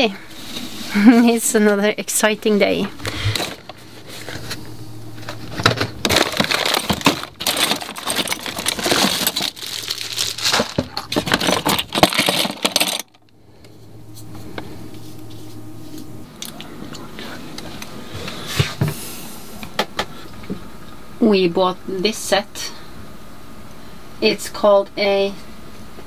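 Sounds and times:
low steady hum: 0:00.0 - 0:26.0
small parts rattling in plastic box: 0:05.6 - 0:13.2.

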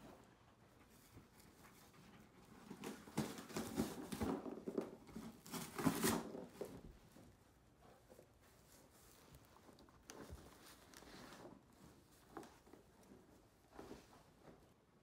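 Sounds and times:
dogs ripping paper: 0:05.1 - 0:06.8.

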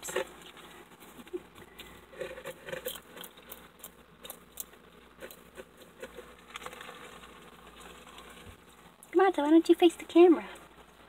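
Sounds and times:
lizard crunching insects: 0:00.0 - 0:08.6.

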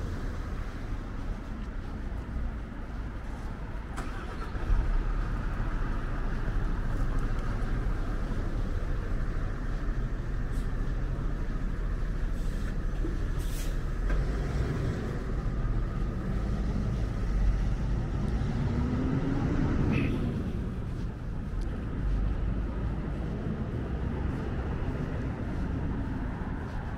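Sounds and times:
engines rumbling: 0:00.0 - 0:26.9
brief hiss: 0:13.4 - 0:13.8.

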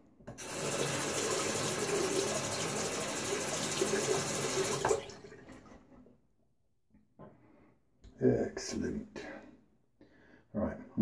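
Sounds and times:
tap water running into sink: 0:00.3 - 0:05.7
water trickling: 0:00.4 - 0:05.8.

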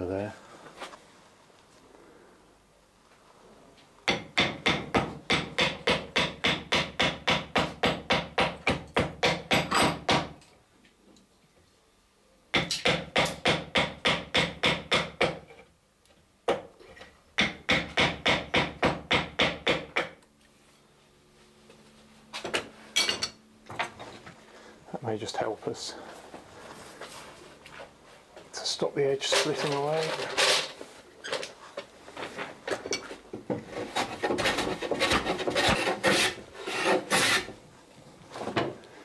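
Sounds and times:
block plane cutting wood: 0:33.7 - 0:37.6.

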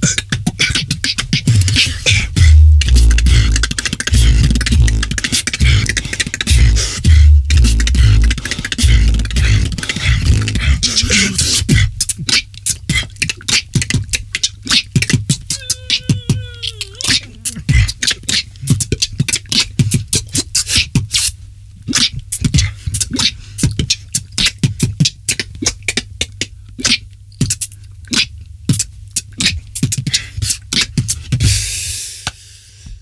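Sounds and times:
beatboxing: 0:00.0 - 0:33.0
steady low bass: 0:02.3 - 0:10.8.

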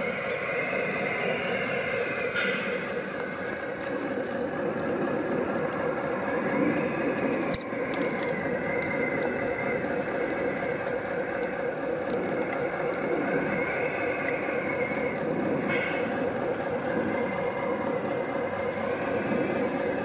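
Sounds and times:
electric motors and pumps whining: 0:00.0 - 0:20.0
small clicks: 0:02.3 - 0:17.4.

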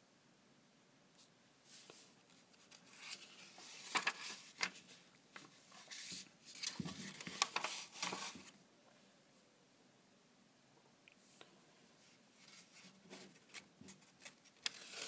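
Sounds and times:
paper pages rustling: 0:01.7 - 0:08.6, 0:12.4 - 0:15.0.

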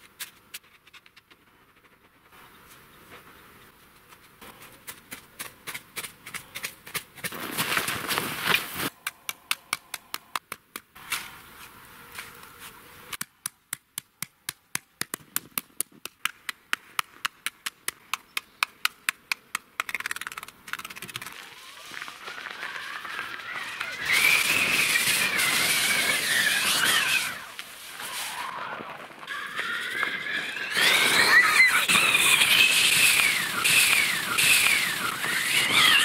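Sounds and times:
footsteps crunching in snow: 0:07.2 - 0:08.9, 0:21.3 - 0:31.3
snow scraping rush: 0:07.3 - 0:08.9, 0:21.4 - 0:29.3, 0:30.0 - 0:36.0.

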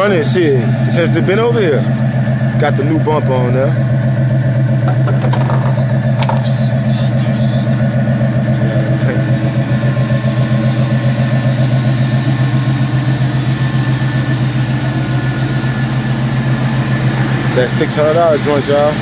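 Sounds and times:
engine idling: 0:00.0 - 0:19.0.

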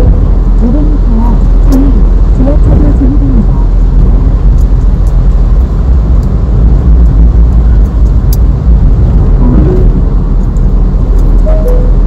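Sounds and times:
low rumbling noise: 0:00.0 - 0:12.0.

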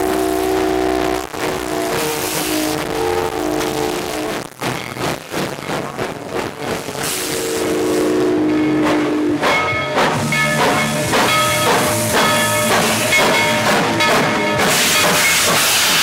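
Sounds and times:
steam locomotive whistle: 0:00.0 - 0:04.5, 0:06.9 - 0:16.0
locomotive chuffing: 0:00.0 - 0:16.0
hiss of steam: 0:06.7 - 0:08.2, 0:10.0 - 0:16.0
rapid ringing tones: 0:09.5 - 0:15.5.

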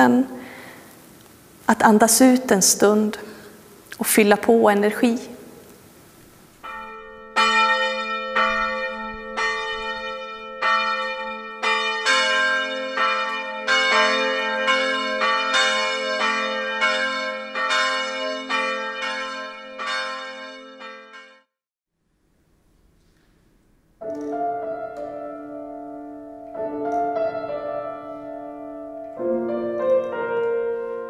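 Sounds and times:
church bells ringing: 0:06.6 - 0:21.5, 0:24.1 - 0:31.0.

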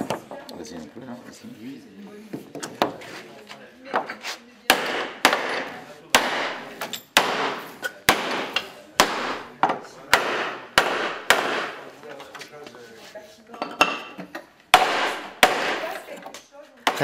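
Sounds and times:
hammer striking wooden pegs: 0:04.7 - 0:11.8, 0:13.8 - 0:15.9.

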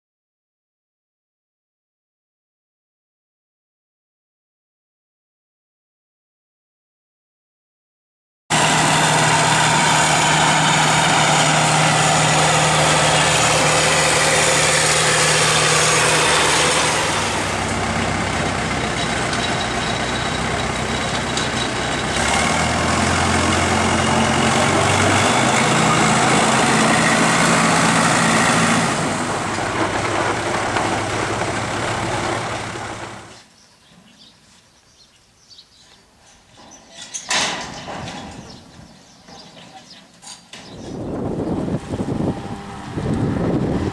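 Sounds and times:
bulldozer diesel engine running: 0:08.5 - 0:33.4, 0:40.7 - 0:43.9.

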